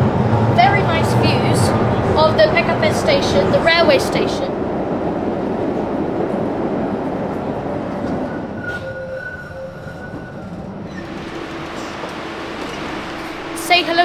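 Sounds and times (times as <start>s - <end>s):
tram wheels and motors rumbling: 0.0s - 14.0s
high squeal: 8.2s - 13.9s.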